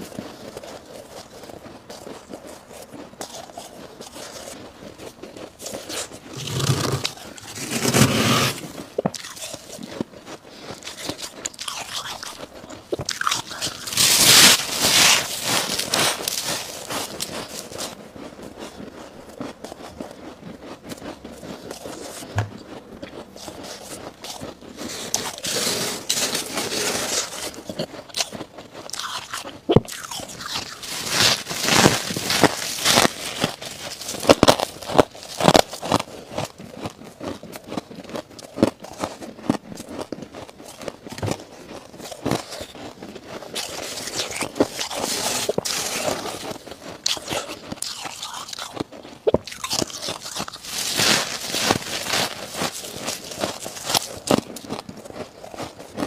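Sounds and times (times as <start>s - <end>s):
frost crunching while chewed: 0.0s - 56.0s
hand scraping frost: 5.7s - 9.0s, 13.4s - 18.0s, 24.8s - 27.7s, 30.6s - 34.6s, 43.7s - 46.6s, 50.6s - 54.6s.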